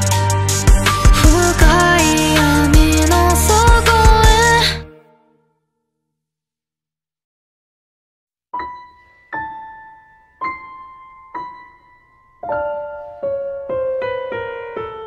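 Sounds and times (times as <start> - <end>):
piano notes: 0.0 - 5.3, 8.6 - 15.0.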